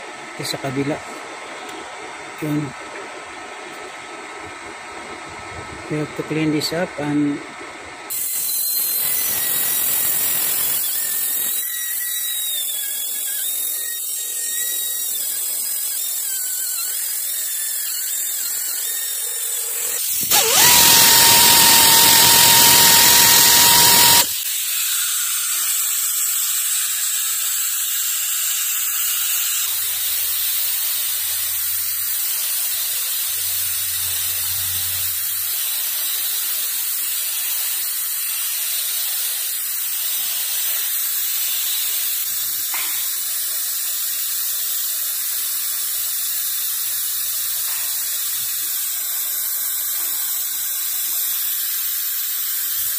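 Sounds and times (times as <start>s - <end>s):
compressed air blow gun hissing: 20.0s - 24.5s.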